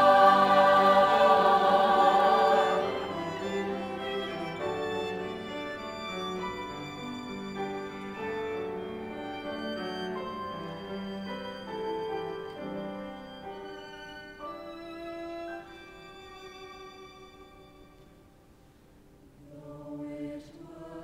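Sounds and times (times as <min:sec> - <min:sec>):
piano accompaniment: 0:00.0 - 0:16.2
violin melody: 0:00.0 - 0:18.2
cello: 0:00.0 - 0:18.4.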